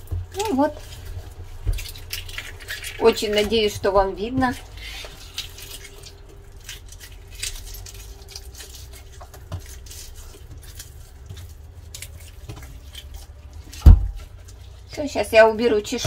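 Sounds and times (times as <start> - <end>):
fingers scratching off fish scales: 0.4 - 3.7, 4.4 - 13.8.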